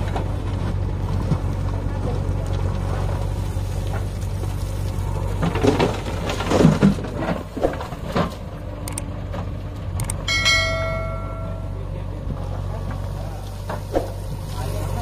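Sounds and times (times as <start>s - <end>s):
scraping and knocking in soil: 0.0s - 9.8s, 12.2s - 15.0s
diesel engines idling: 0.0s - 15.0s.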